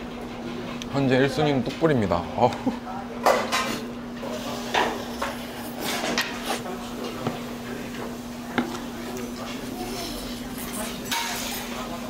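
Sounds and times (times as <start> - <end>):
spoon clinking against bowls: 10.6 - 11.8.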